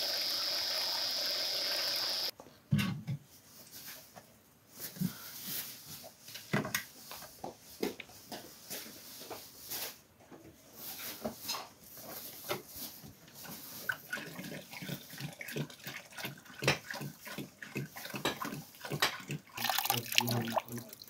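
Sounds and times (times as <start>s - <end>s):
water pouring into metal pot: 19.5s - 21.0s.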